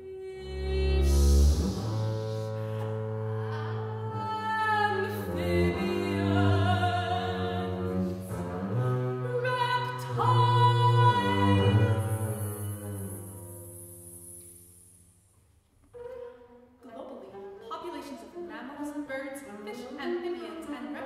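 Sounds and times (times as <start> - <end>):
soprano singing: 0.0 - 13.4
bowed double bass: 0.0 - 15.0.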